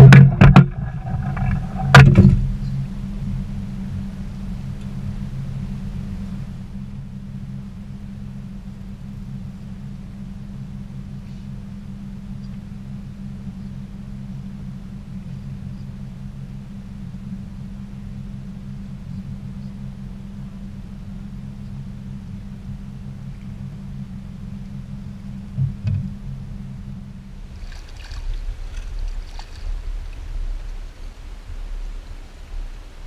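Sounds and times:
brief thump: 0:00.0 - 0:02.6, 0:25.6 - 0:26.2
boat motor humming: 0:00.0 - 0:33.0.

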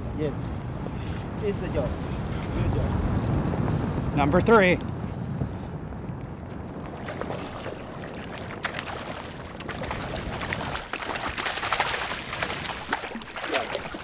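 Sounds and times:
fish splashing at water surface: 0:07.0 - 0:14.0.

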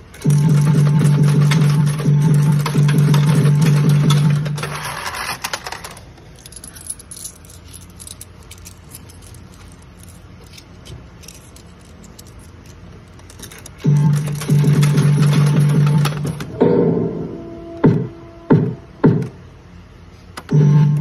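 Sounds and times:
scattered clicks: 0:00.0 - 0:04.8
slot machine electronic music: 0:00.2 - 0:04.7, 0:13.8 - 0:18.6, 0:20.5 - 0:21.0.

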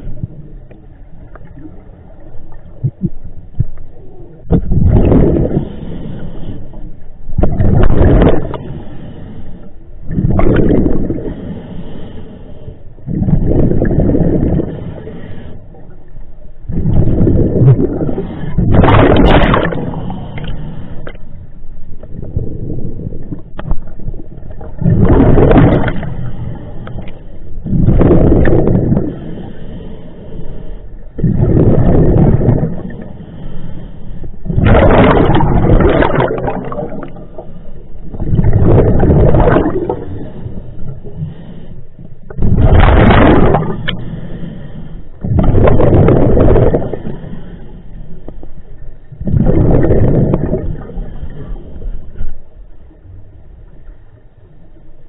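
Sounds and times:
exhaled air bubbling: 0:00.0 - 0:54.9
diver breathing through regulator: 0:05.1 - 0:06.9, 0:08.4 - 0:09.8, 0:11.0 - 0:15.8, 0:19.7 - 0:21.4, 0:25.8 - 0:34.6, 0:39.5 - 0:42.4, 0:43.7 - 0:45.5, 0:46.5 - 0:49.0.

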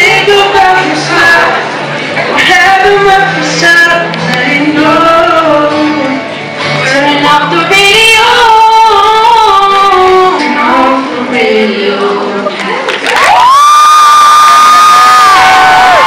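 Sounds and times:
man singing: 0:00.0 - 0:12.6
acoustic guitar: 0:00.0 - 0:13.4.

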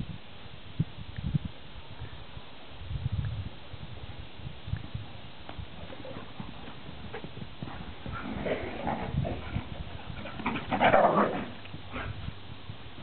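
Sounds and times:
dogs' paws thudding and scuffling: 0:04.8 - 0:13.0.

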